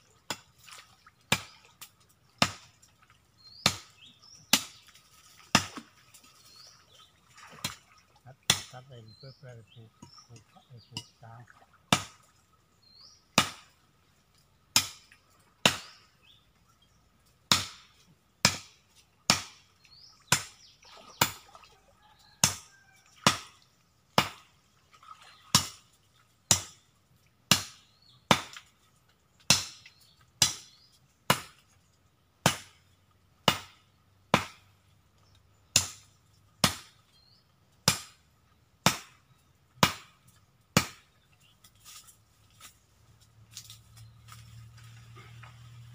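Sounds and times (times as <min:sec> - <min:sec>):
machete chopping wood: 0:00.2 - 0:00.5, 0:01.3 - 0:01.6, 0:02.4 - 0:02.7, 0:03.6 - 0:04.8, 0:05.5 - 0:05.9, 0:08.5 - 0:08.8, 0:11.9 - 0:12.2, 0:13.3 - 0:13.8, 0:14.7 - 0:16.0, 0:17.5 - 0:21.4, 0:22.4 - 0:23.6, 0:24.2 - 0:24.5, 0:25.5 - 0:25.8, 0:26.4 - 0:26.8, 0:27.5 - 0:28.7, 0:29.5 - 0:31.6, 0:32.4 - 0:32.8, 0:33.4 - 0:34.8, 0:35.6 - 0:37.0, 0:37.8 - 0:38.2, 0:38.8 - 0:41.2.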